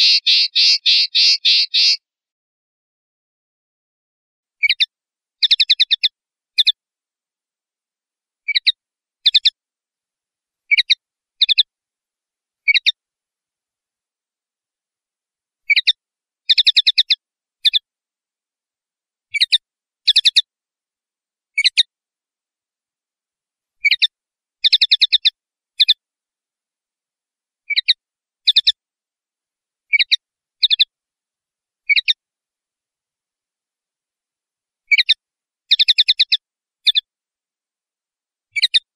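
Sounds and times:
linnet singing: 0.0s - 2.0s, 4.6s - 6.8s, 8.5s - 9.6s, 23.8s - 26.0s, 27.7s - 28.8s, 31.9s - 32.2s, 34.9s - 37.0s, 38.6s - 38.9s.

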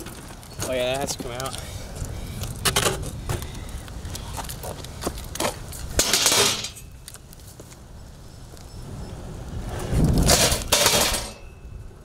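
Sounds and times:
bike metallic clinks and rattles: 5.4s - 7.2s, 10.2s - 11.6s
bike scraping on asphalt: 8.8s - 11.3s.

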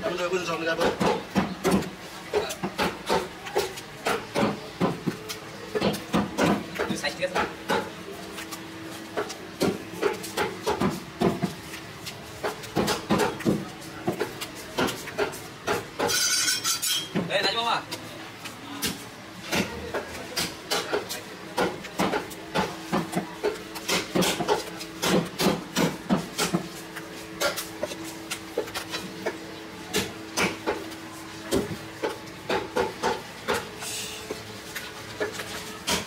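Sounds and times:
knife chopping meat on wooden block: 0.7s - 5.1s, 5.8s - 7.9s, 9.2s - 11.6s, 12.4s - 16.1s, 21.6s - 26.7s.

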